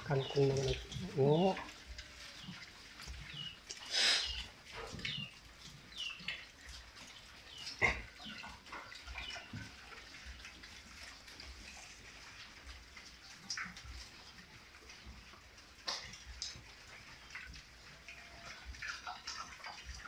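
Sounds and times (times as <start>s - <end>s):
pigs grunting: 0.0s - 6.0s, 7.5s - 12.5s
pigs munching: 0.0s - 20.0s.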